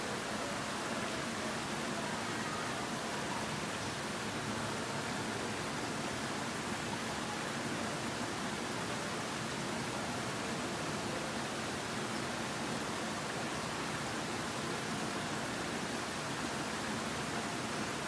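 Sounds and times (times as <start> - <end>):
water rushing over rocks: 0.0 - 18.0.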